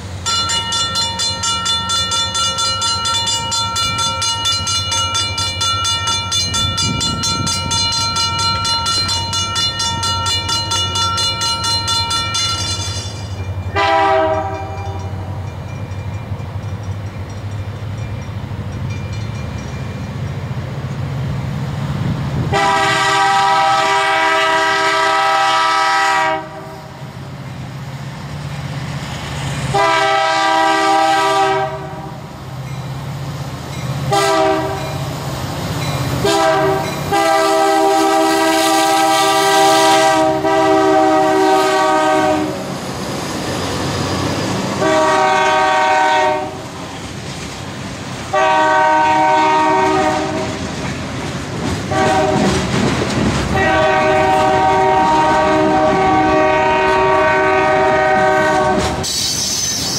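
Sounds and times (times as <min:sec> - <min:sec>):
locomotive air horn blasts: 0:13.7 - 0:14.9, 0:22.5 - 0:27.0, 0:29.7 - 0:32.1, 0:34.1 - 0:34.9, 0:36.2 - 0:42.7, 0:44.8 - 0:46.7, 0:48.3 - 0:50.5, 0:51.9 - 0:52.5, 0:53.6 - 0:59.1.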